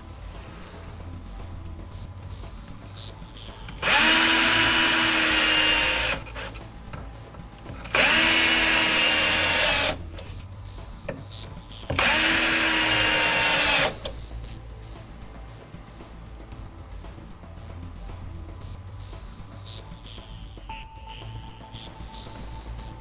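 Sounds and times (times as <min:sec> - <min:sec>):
cordless drill whine: 0:03.7 - 0:10.4, 0:11.9 - 0:14.2.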